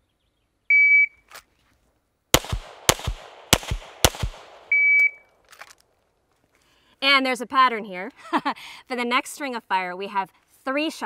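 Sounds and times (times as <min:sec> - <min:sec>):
pistol shots: 0:02.4 - 0:05.0
shot timer beep: 0:04.7 - 0:05.2.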